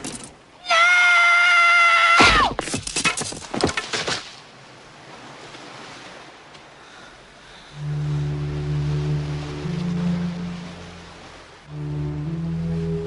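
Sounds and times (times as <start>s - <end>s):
sharp knocks and cracks: 2.2s - 4.4s
surf washing on shore: 4.2s - 13.0s.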